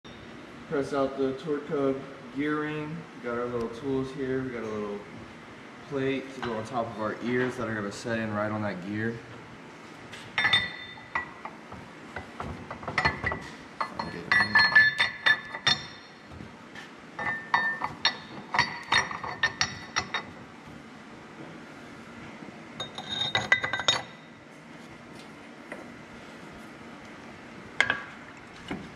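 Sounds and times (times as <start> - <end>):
steel plates clinking and clanking: 12.8 - 16.2.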